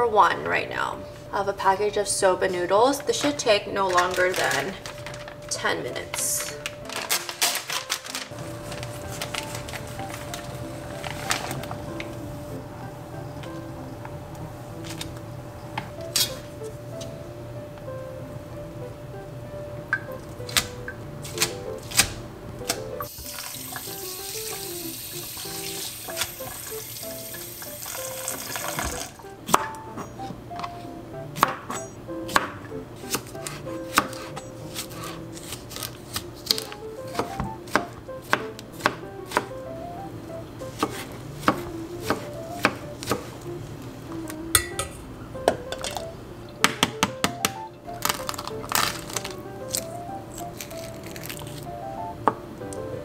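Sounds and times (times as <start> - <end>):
running water hiss: 23.0 - 29.2
knife chopping on cutting board: 31.4 - 39.5, 40.7 - 43.3.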